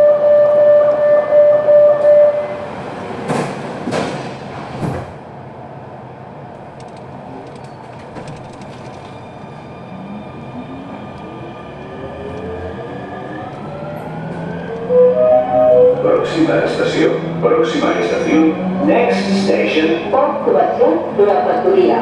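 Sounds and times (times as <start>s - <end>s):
train running noise: 0.3s - 5.4s, 6.3s - 22.0s
train clunks: 2.9s - 5.3s.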